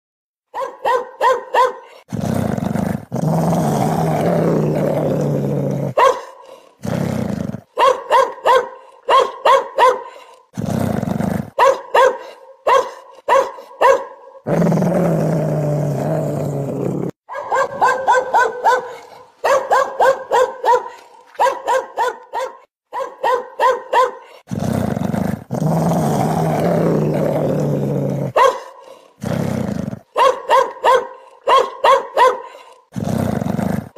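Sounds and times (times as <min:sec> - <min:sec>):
dog barking: 0:00.5 - 0:02.1, 0:05.9 - 0:06.6, 0:07.7 - 0:10.3, 0:11.5 - 0:14.5, 0:17.3 - 0:24.4, 0:28.3 - 0:29.1, 0:30.1 - 0:32.8
dog growling deeply: 0:02.0 - 0:07.7, 0:10.4 - 0:11.6, 0:14.4 - 0:17.9, 0:24.4 - 0:30.1, 0:32.8 - 0:33.9.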